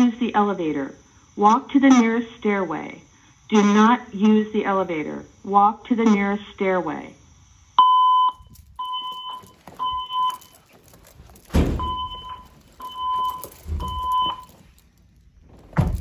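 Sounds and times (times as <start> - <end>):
fire alarm high beeps: 7.8 - 14.7
dull handling thumps: 8.5 - 16.0.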